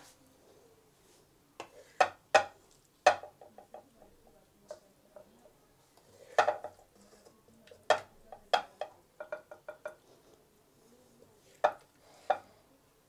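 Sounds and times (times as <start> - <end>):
wooden spatula knocking a metal pot: 1.6 - 5.3, 6.3 - 6.9, 7.7 - 10.0, 11.6 - 12.5.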